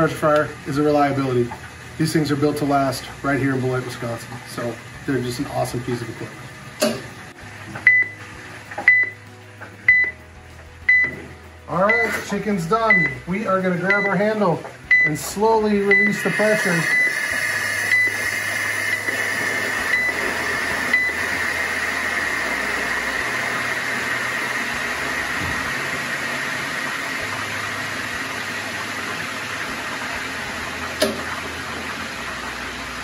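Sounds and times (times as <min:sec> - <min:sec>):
pressure fryer venting hiss: 0:00.0 - 0:33.0
short beeps: 0:07.9 - 0:08.2, 0:08.9 - 0:09.2, 0:09.9 - 0:10.2, 0:10.9 - 0:11.2, 0:11.9 - 0:12.2, 0:12.9 - 0:13.2, 0:13.9 - 0:14.2, 0:14.9 - 0:15.2, 0:15.9 - 0:16.2, 0:16.8 - 0:17.2.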